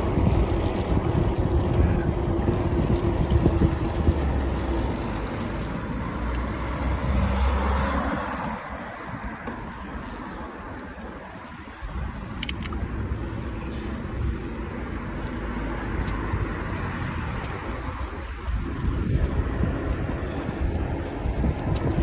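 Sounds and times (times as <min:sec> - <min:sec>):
wind buffeting microphone: 0:00.0 - 0:05.8, 0:16.2 - 0:22.0
road traffic rumble: 0:00.0 - 0:22.0.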